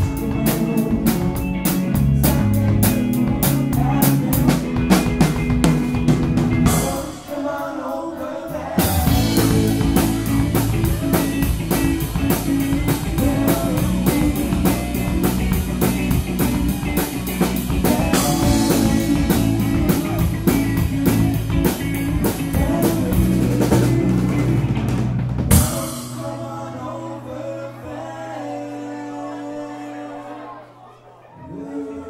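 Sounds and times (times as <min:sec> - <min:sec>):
live rock band playing: 0:00.0 - 0:07.8, 0:08.5 - 0:27.0.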